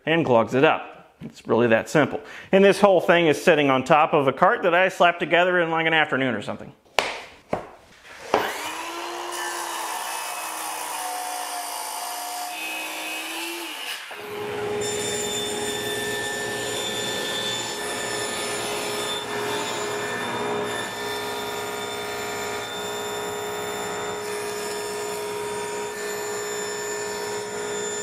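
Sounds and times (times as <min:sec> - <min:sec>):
circular saw cutting plywood: 0:08.0 - 0:28.0
table saw running: 0:08.1 - 0:28.0.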